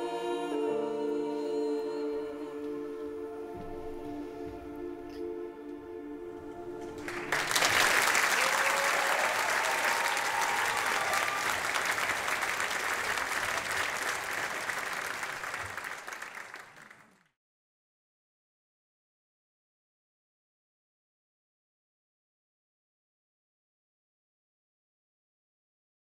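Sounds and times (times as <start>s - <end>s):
music final chord: 0.0s - 8.2s
audience applauding: 6.9s - 17.3s.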